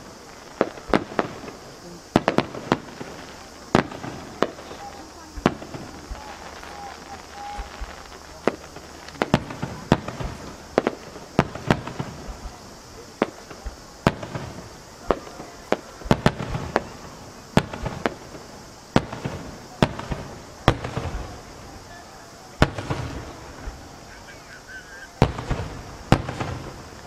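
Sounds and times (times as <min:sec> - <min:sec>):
firework crackling hiss: 0:00.0 - 0:27.0
firework shells bursting: 0:00.0 - 0:27.0.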